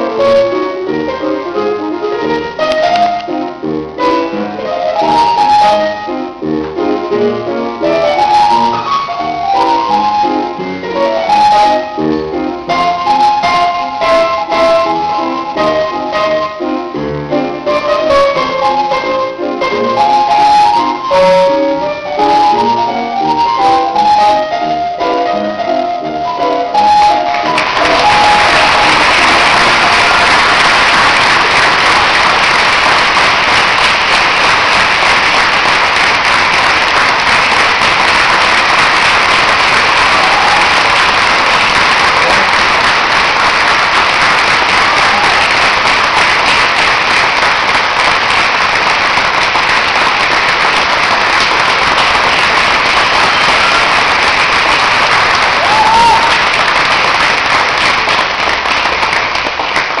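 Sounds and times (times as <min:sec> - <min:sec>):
audience applauding: 0:26.6 - 1:00.0.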